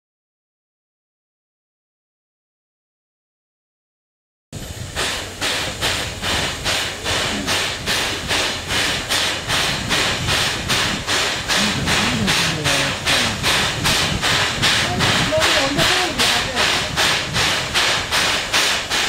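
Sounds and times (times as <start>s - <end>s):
steam hissing: 4.6s - 19.0s
steam locomotive exhaust chuffing: 4.6s - 19.0s.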